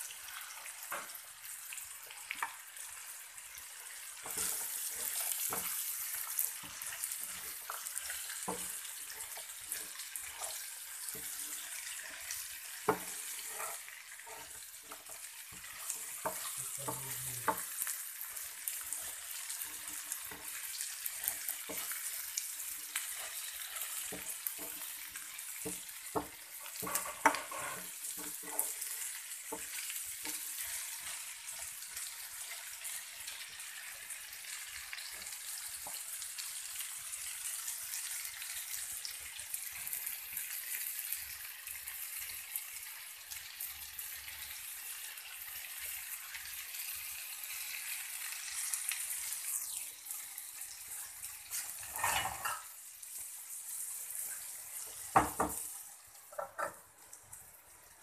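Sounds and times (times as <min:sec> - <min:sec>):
okra sizzling in a frying pan: 0:00.0 - 0:58.0
wooden spatula scraping a pan: 0:02.3 - 0:33.9, 0:50.9 - 0:52.7.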